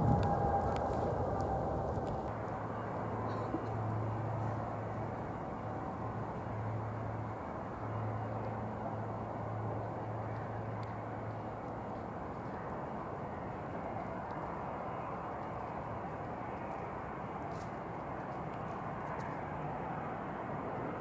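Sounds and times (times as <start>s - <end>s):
jet engines whining: 0.0s - 4.6s.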